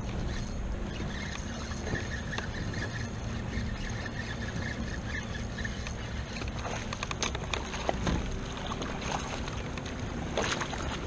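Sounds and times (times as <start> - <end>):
water lapping around kayak: 0.0 - 11.0
wind rumble on microphone: 0.0 - 11.0
clicks and splashes: 5.6 - 11.0.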